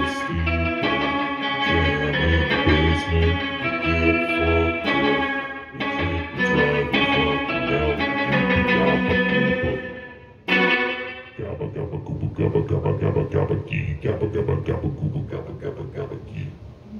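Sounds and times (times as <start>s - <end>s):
electric guitar chords: 0.0s - 13.2s.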